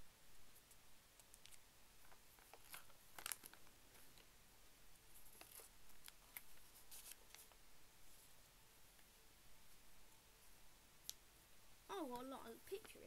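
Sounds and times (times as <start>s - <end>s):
paper pages rustling: 1.4s - 4.3s, 5.2s - 8.3s.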